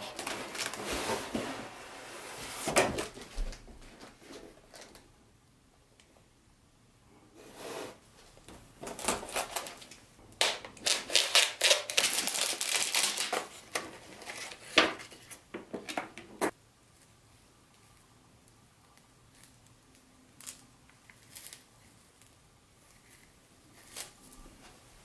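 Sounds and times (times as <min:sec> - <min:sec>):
packaging rustling: 0:00.0 - 0:01.7, 0:08.8 - 0:15.3.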